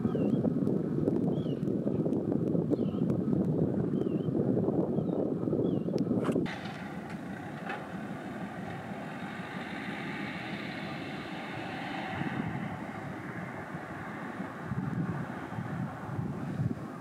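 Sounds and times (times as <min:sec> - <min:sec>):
wind rumble on microphone: 0:00.0 - 0:17.0
ferry engines droning: 0:06.4 - 0:17.0.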